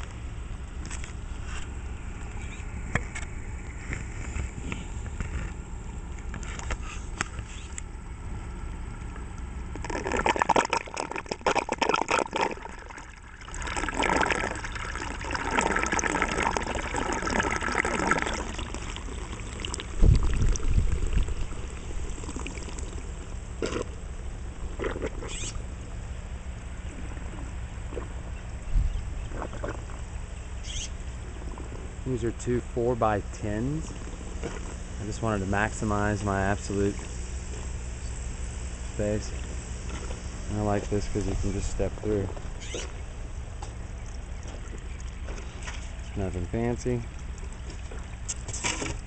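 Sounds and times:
steady low hum: 0.0s - 49.0s
water trickling and gurgling: 8.9s - 32.4s, 42.5s - 49.0s.

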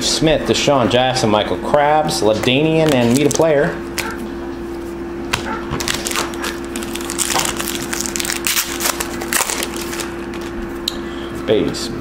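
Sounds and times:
steady low hum: 0.0s - 12.0s
foil card packs crinkling: 2.2s - 10.8s.

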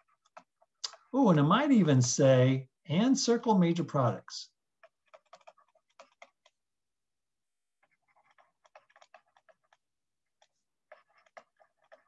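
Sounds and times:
stylus tapping on tablet: 4.7s - 6.6s, 7.8s - 12.0s.

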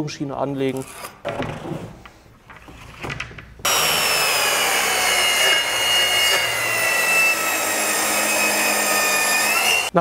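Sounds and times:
track saw whine cutting wood: 3.7s - 10.0s.

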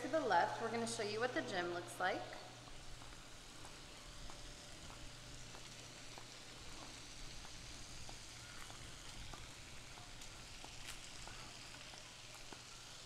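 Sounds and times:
faint outdoor hiss: 0.0s - 13.0s
footsteps on concrete: 2.6s - 13.0s.

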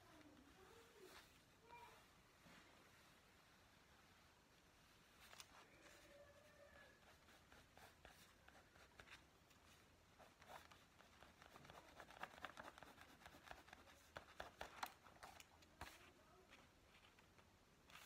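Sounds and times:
pen scratching on paper: 6.9s - 9.2s, 10.2s - 16.1s.

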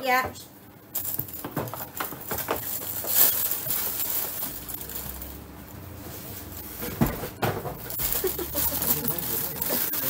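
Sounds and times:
plastic packaging crinkling: 0.9s - 6.7s, 7.8s - 10.0s.

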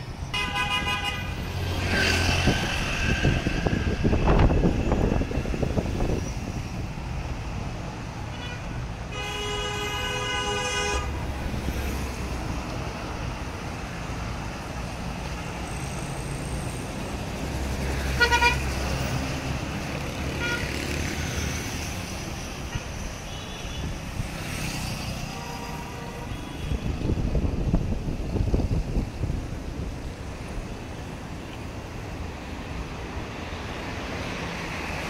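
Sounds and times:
traffic engines and vehicles passing: 0.0s - 35.0s
car horns tooting: 0.3s - 1.4s, 8.3s - 11.2s, 18.2s - 18.7s.

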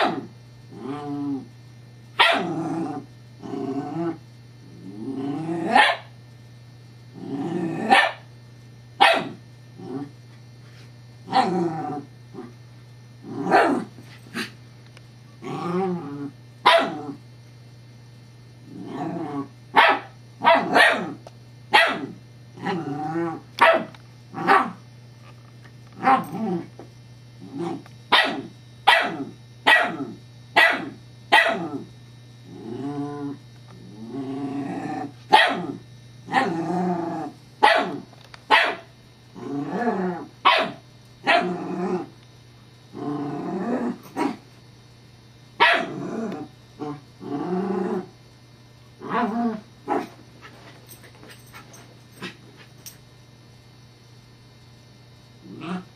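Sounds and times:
puppy barking: 2.2s - 2.5s, 5.7s - 6.1s, 7.9s - 8.3s, 9.0s - 9.4s, 16.6s - 17.0s, 19.8s - 22.1s, 23.6s - 24.8s, 28.1s - 30.0s, 30.6s - 31.7s, 35.3s - 35.7s, 37.6s - 38.9s, 40.4s - 41.5s, 45.6s - 45.9s.

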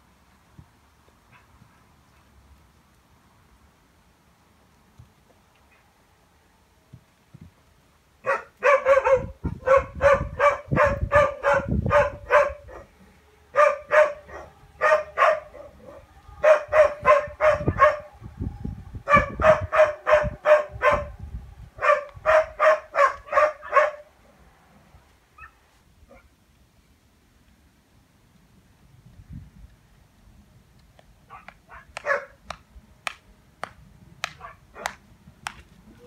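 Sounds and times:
dog barking: 8.2s - 12.9s, 13.6s - 18.1s, 19.1s - 21.1s, 21.8s - 24.1s, 25.4s - 26.3s, 31.3s - 32.4s, 34.4s - 35.0s.

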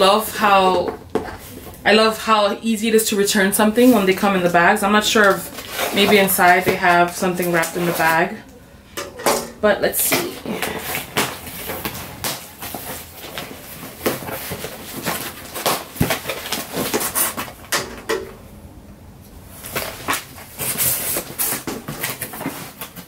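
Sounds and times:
packing rustling: 4.9s - 8.2s, 10.5s - 17.8s, 19.5s - 23.0s
cardboard box being opened: 10.6s - 17.5s.

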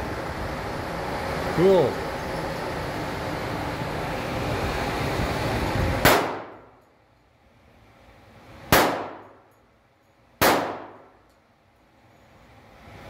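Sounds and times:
pistol shots echoing indoors: 6.0s - 6.6s, 8.7s - 9.4s, 10.4s - 11.2s.

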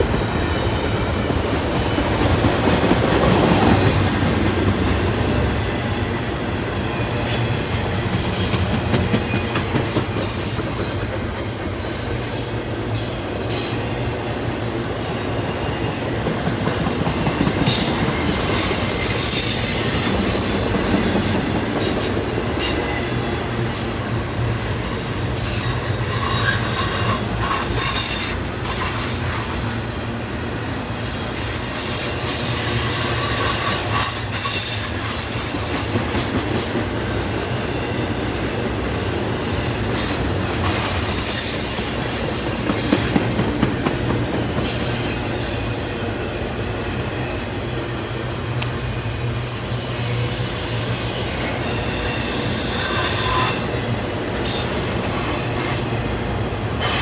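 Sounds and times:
train wheels rumbling on rail: 0.0s - 57.0s
high-pitched wheel squeal: 17.7s - 20.3s, 22.6s - 29.9s, 31.0s - 35.6s, 49.5s - 55.9s.

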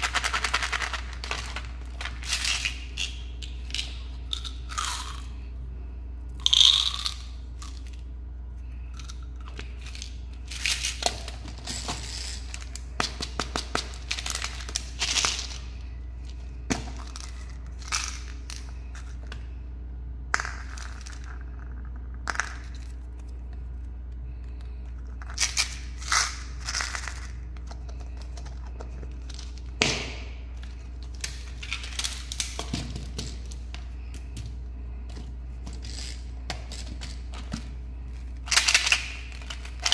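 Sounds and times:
candies and plastic containers rattling: 0.0s - 5.2s, 9.0s - 15.9s, 16.8s - 19.2s, 30.6s - 34.4s, 35.2s - 39.9s
low hum: 0.0s - 39.9s.

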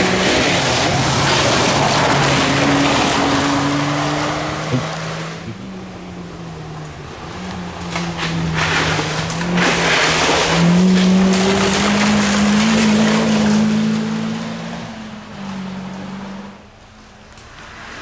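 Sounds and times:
rally car engine accelerating: 0.0s - 18.0s
tyres rushing on dirt: 0.0s - 18.0s.

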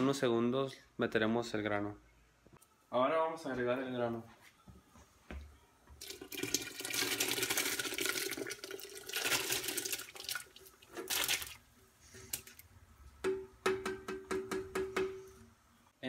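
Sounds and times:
liquid pouring and splashing into pot: 6.0s - 12.7s.

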